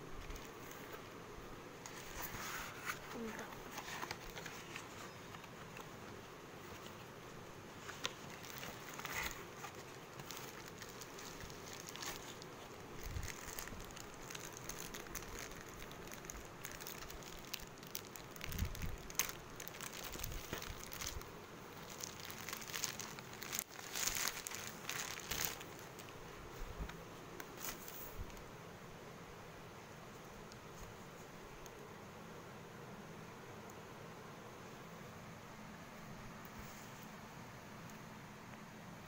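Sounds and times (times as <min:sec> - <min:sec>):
plastic bag crinkling: 0:00.1 - 0:01.0, 0:01.8 - 0:28.4.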